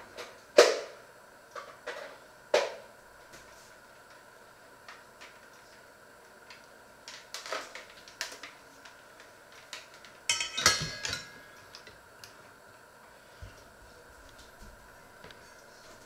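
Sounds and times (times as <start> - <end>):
metallic ring: 10.3 - 11.6
metal pots and utensils clattering: 10.3 - 11.7.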